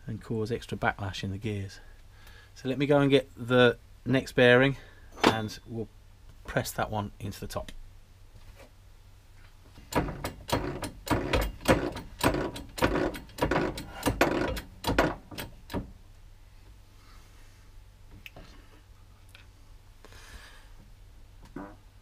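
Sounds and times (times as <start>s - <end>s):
hydraulic press pump clacking: 9.9s - 15.9s.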